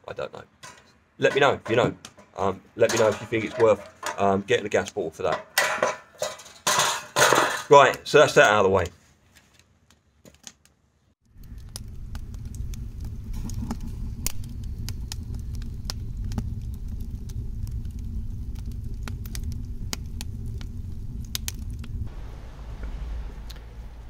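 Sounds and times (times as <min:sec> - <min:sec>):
wood fire crackling and popping: 0:01.2 - 0:08.6, 0:10.3 - 0:22.1
low steady rumble: 0:11.3 - 0:24.0.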